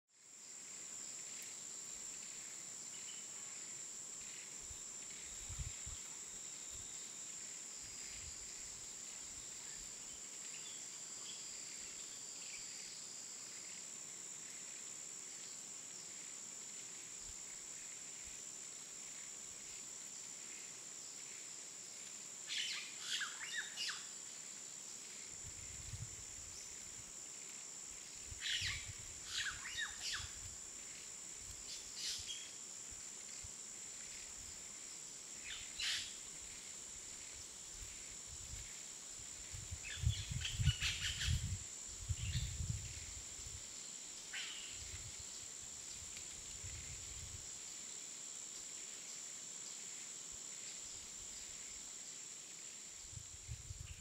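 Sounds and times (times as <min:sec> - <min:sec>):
high-pitched insect drone: 0:25.0 - 0:47.7.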